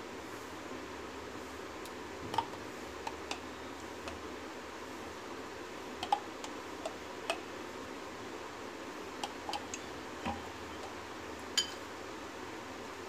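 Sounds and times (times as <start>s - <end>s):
metal spoon tapping glass: 11.6s - 11.8s.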